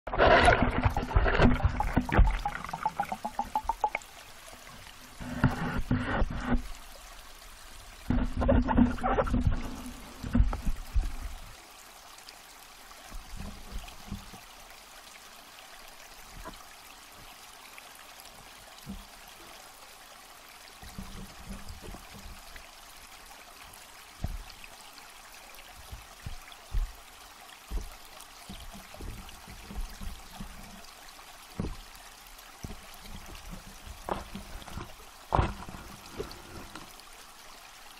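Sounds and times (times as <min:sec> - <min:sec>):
water gurgling and sloshing: 0:00.1 - 0:37.9
dull low bumps: 0:08.0 - 0:11.4, 0:24.2 - 0:24.6, 0:25.8 - 0:27.1, 0:27.7 - 0:30.8, 0:31.5 - 0:32.0, 0:32.6 - 0:36.9.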